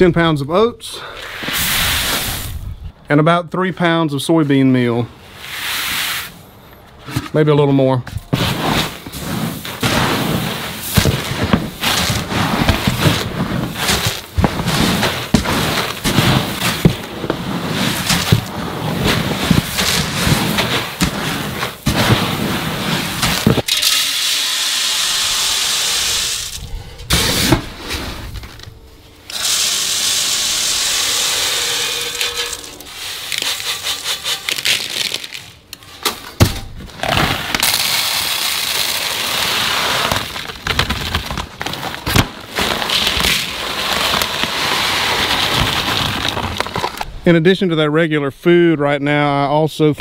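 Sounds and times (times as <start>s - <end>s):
dry grain feed rustling: 8.4s - 23.6s
grain poured into a feeder: 29.4s - 35.4s.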